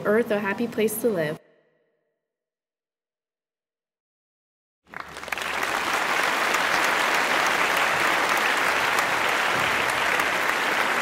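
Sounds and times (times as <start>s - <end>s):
crowd applause: 4.9s - 11.0s.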